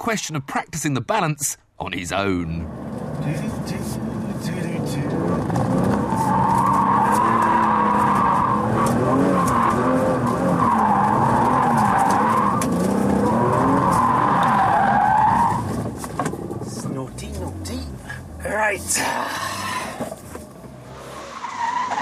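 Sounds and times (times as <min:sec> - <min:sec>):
car engine revving: 0:02.5 - 0:22.0
tyres squealing: 0:04.7 - 0:15.8.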